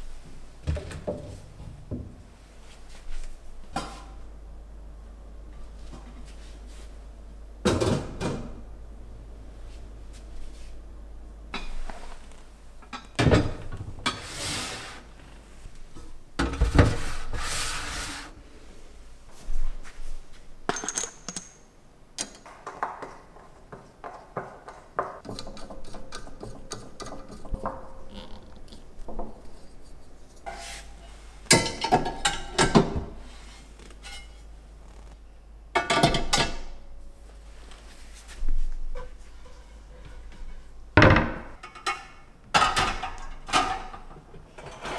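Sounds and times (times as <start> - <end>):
metal pans clanking: 31.5 - 33.1.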